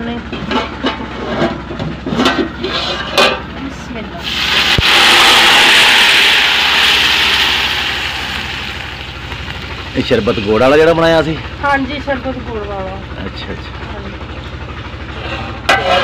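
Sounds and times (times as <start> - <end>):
syrup poured hissing rush: 4.2 - 11.4
onions sizzling in a pot: 4.2 - 11.6.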